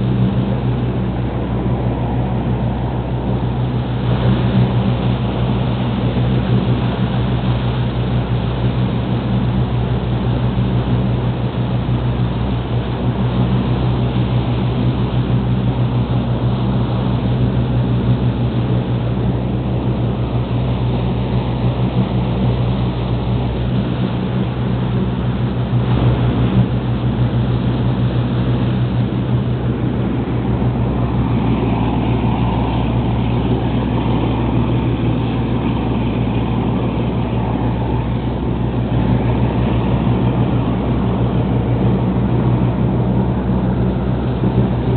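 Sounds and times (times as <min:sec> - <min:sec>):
boat engine droning: 0:00.0 - 0:44.9
water rushing from wake: 0:00.0 - 0:44.9.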